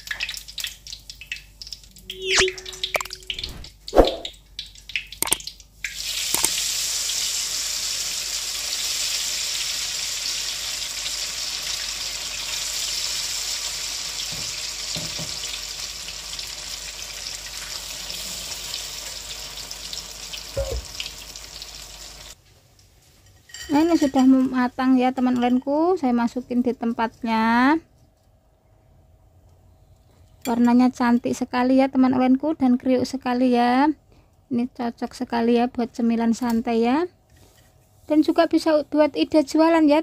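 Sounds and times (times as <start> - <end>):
food deep-frying in hot oil: 0.0 - 25.5.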